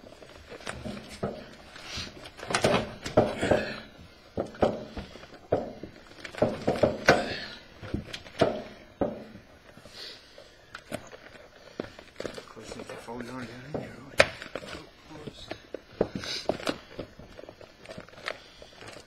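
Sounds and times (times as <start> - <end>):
bladder rustling and crumpling: 0.0 - 19.0.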